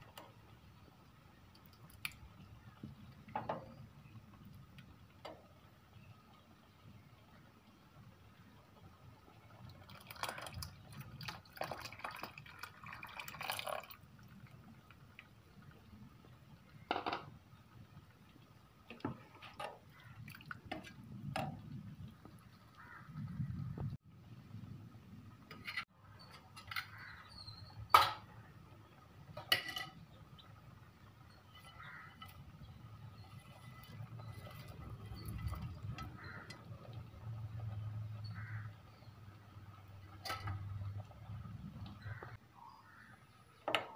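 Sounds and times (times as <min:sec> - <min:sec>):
liquid pouring into a pot: 0:09.5 - 0:15.3
metal utensils clinking: 0:29.4 - 0:30.0.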